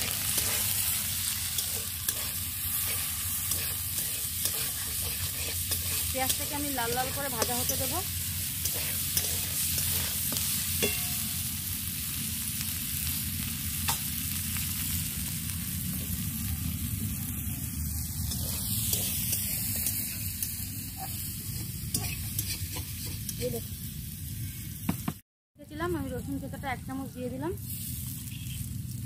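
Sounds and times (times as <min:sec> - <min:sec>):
metal spatula stirring in wok: 0:00.0 - 0:11.3, 0:18.3 - 0:20.4, 0:21.9 - 0:23.5
onions sizzling in oil: 0:00.0 - 0:25.0, 0:25.7 - 0:29.0.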